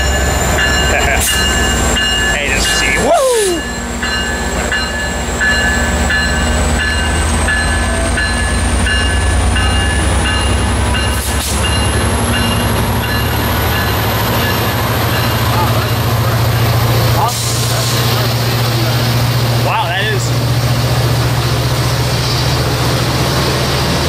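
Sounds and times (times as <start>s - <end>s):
bell dinging: 0.0s - 16.7s
diesel locomotive engine drone: 0.0s - 24.0s
train cars rolling: 0.0s - 24.0s.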